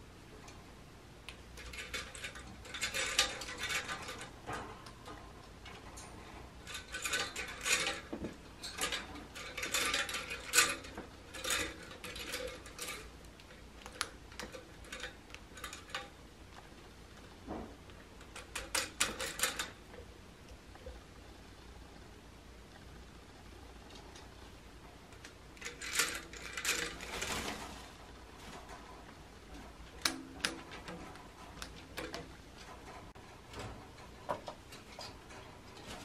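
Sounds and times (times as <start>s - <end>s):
rapid clicking and clattering: 1.6s - 16.2s, 17.2s - 20.1s, 25.1s - 36.0s.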